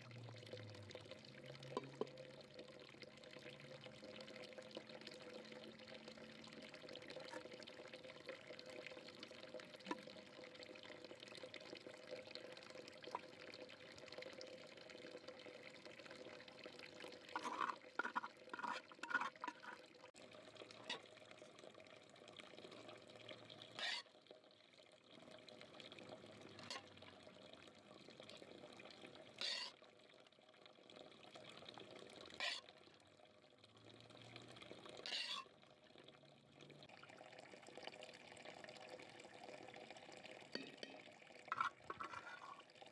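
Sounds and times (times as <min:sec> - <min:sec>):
metal spoon scraping a pot: 0:17.3 - 0:19.9, 0:23.8 - 0:24.1, 0:26.6 - 0:26.9, 0:29.4 - 0:29.8, 0:32.4 - 0:32.7, 0:35.0 - 0:35.5, 0:40.6 - 0:42.7.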